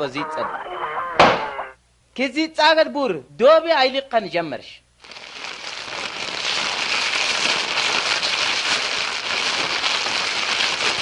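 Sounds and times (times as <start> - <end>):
crackling hiss: 5.0 - 11.0.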